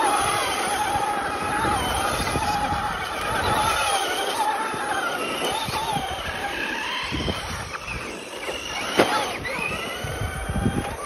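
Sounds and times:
toy car electric motors whining: 0.0 - 11.0.

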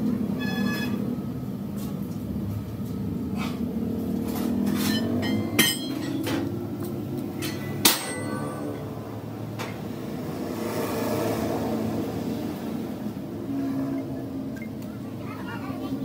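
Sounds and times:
low mechanical hum: 0.0 - 16.0
sharp metallic knocks: 4.7 - 6.5, 7.4 - 9.9.

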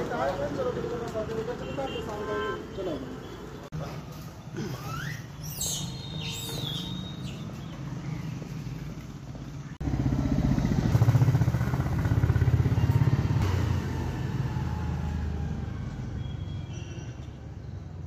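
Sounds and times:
street traffic hum: 0.0 - 18.0
vehicle engine running close: 7.7 - 16.3.

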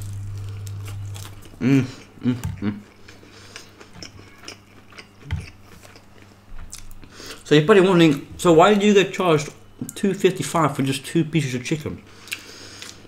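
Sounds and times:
chewing fried chicken: 0.0 - 7.1
low steady hum: 0.0 - 13.0.

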